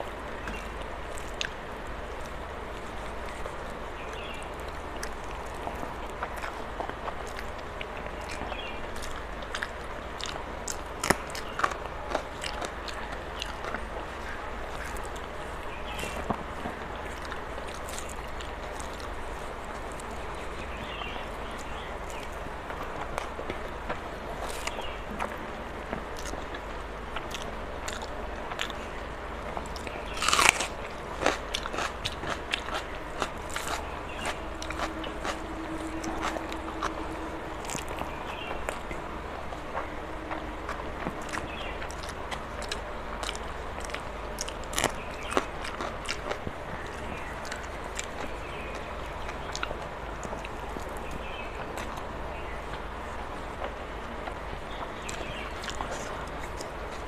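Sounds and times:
chewing with wet mouth clicks: 2.2 - 16.4, 26.2 - 26.6, 27.2 - 29.0, 29.6 - 52.0.

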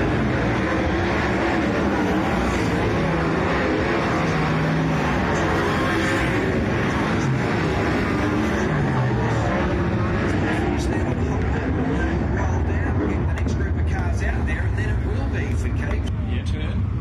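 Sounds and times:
race car engines droning: 0.0 - 17.0.

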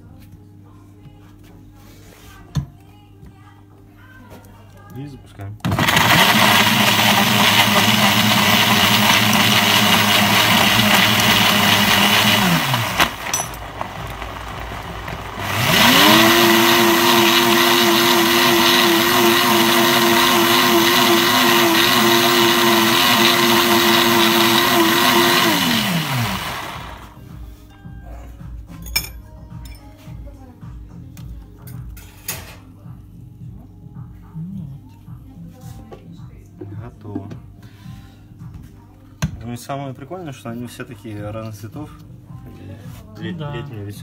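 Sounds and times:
blender running: 5.6 - 27.2.

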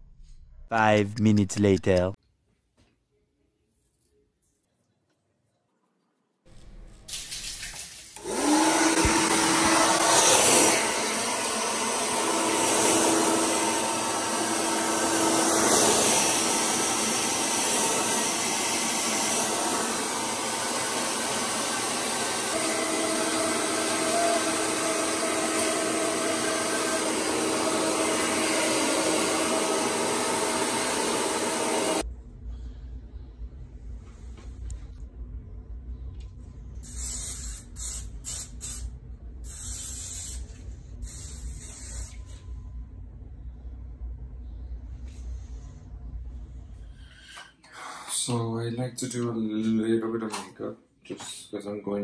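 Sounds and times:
hair dryer blowing: 8.2 - 32.1.

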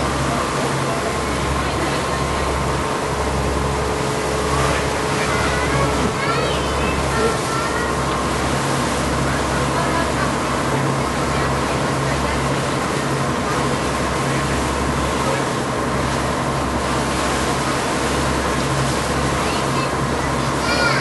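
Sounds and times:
boat engine drone: 0.0 - 21.0.

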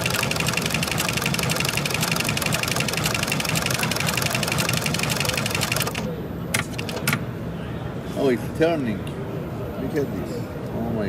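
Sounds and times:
sewing machine stitching: 0.0 - 6.1.

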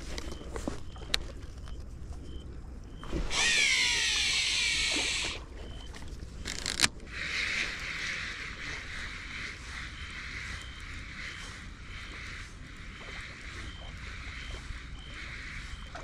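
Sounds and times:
fishing reel spool whirring: 3.0 - 6.9.

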